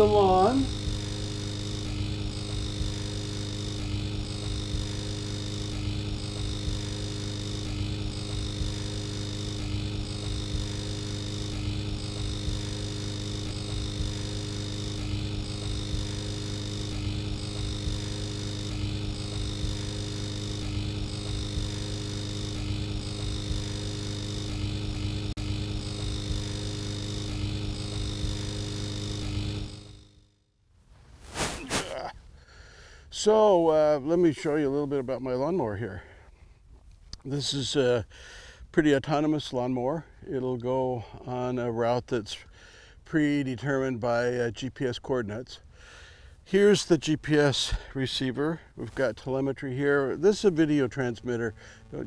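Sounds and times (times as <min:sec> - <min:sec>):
faint pulse: 0:00.0 - 0:30.2, 0:50.2 - 0:52.0
steady hum with held tones: 0:00.0 - 0:30.4, 0:31.1 - 0:52.0.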